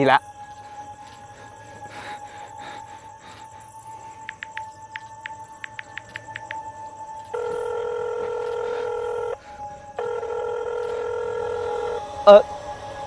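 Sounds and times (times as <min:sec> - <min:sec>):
faint rapid ticking: 0:03.1 - 0:09.4
phone ringback tone: 0:07.3 - 0:09.4, 0:10.0 - 0:12.4.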